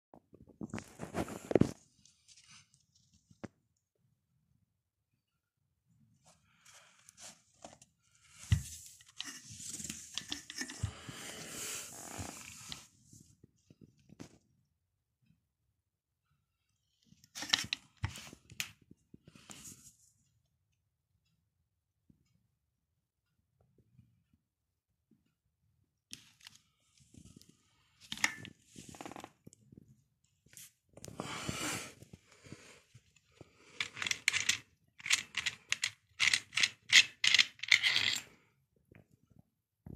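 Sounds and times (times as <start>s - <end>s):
angle grinder rustling on carpet: 6.6s - 13.0s.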